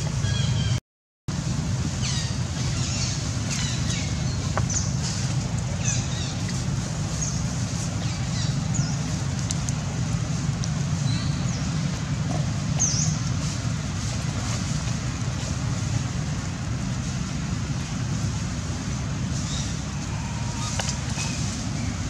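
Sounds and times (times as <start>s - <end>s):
low outdoor rumble: 0.0s - 22.0s.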